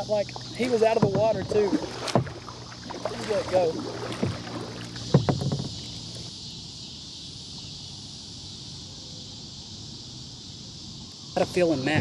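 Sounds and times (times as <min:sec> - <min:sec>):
crickets and insects chirring: 0:00.0 - 0:12.0
sharp knocks: 0:00.9 - 0:02.5, 0:04.2 - 0:05.9.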